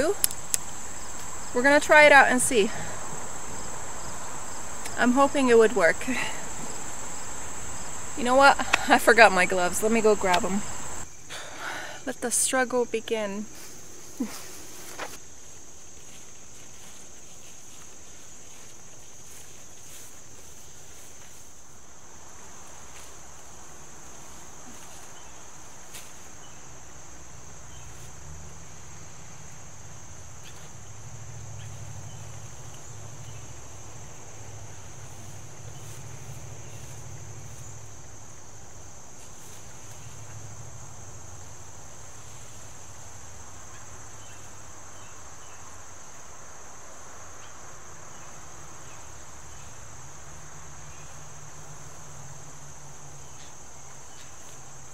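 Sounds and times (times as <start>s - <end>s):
branches rustling and clicking: 0.0s - 1.6s, 13.5s - 26.8s, 29.8s - 44.7s
insects trilling: 0.0s - 54.9s.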